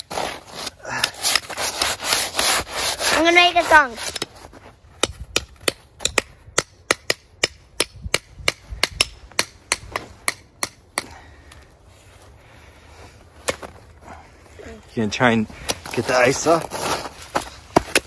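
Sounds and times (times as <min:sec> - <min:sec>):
metal trowel chipping ice: 0:00.0 - 0:04.3.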